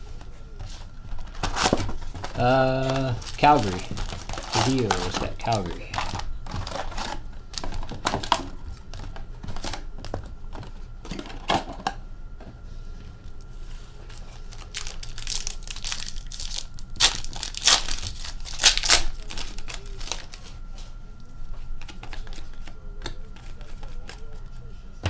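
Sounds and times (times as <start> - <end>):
foil packs crinkling: 1.0 - 9.8, 14.0 - 20.5.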